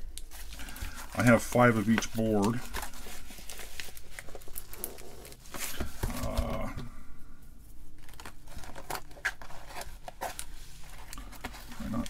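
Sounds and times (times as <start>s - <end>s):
bubble wrap crinkling: 0.0s - 6.4s, 7.8s - 12.0s.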